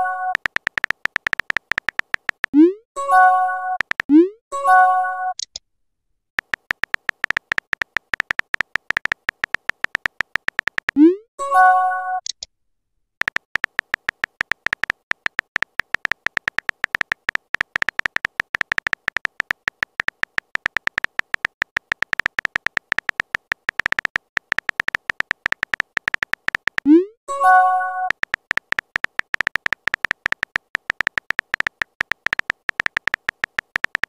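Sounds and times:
keyboard tap clicks: 0:00.3 - 0:02.6, 0:03.8 - 0:04.2, 0:06.4 - 0:11.0, 0:13.2 - 0:26.9, 0:28.1 - 0:34.0.

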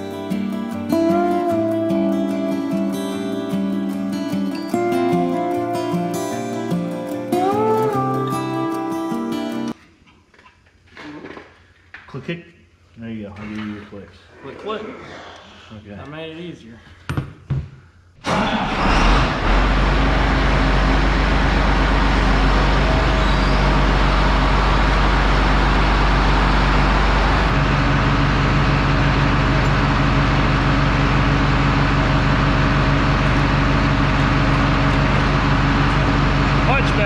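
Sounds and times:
diesel tractor engine: 0:18.2 - 0:37.0.

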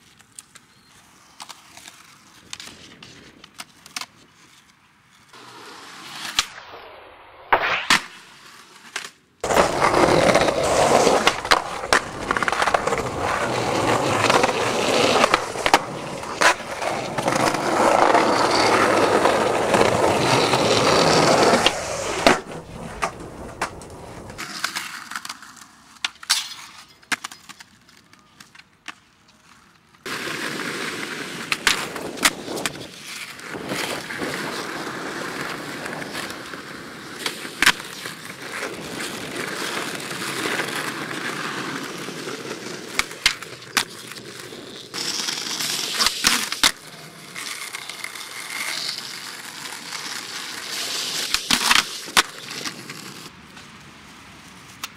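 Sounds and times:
skateboard wheels rolling on concrete: 0:00.0 - 0:54.9
skateboard popping and landing clacks: 0:07.5 - 0:27.7, 0:30.0 - 0:53.7.

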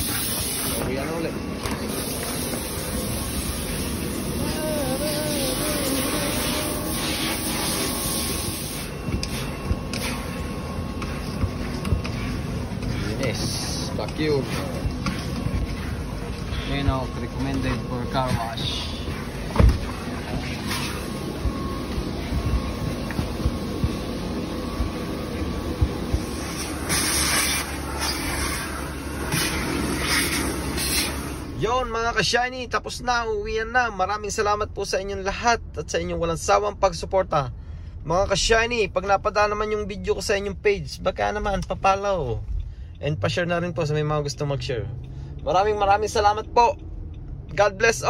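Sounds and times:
hissing spray from nozzle: 0:00.0 - 0:00.9, 0:01.8 - 0:10.4, 0:26.2 - 0:31.5
car wash equipment hissing: 0:00.0 - 0:32.3
low rumble: 0:10.6 - 0:26.6.

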